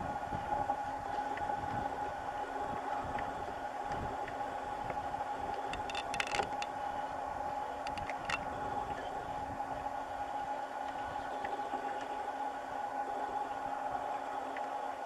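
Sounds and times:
steady mechanical hum: 0.0 - 15.0
camera handling clicks and rustles: 5.6 - 6.7, 7.9 - 8.4.

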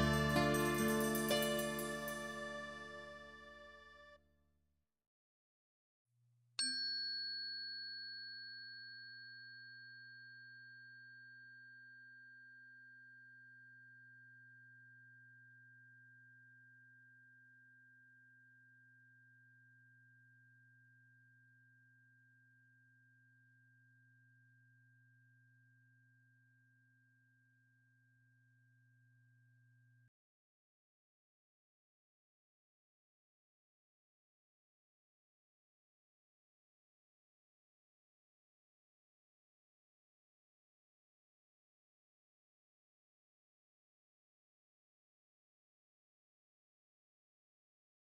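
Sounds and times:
thin high tone: 0.0 - 4.1
tuning fork ringing: 0.0 - 4.1, 6.6 - 30.1.

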